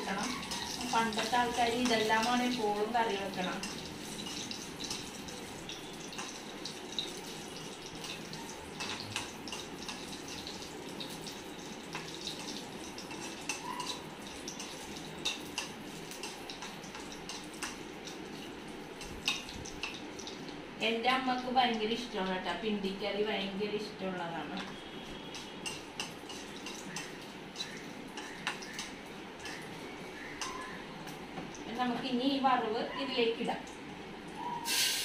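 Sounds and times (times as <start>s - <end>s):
metal spoon stirring in pan: 0.0s - 20.4s, 24.6s - 30.8s
spices sizzling in hot oil: 0.0s - 35.0s.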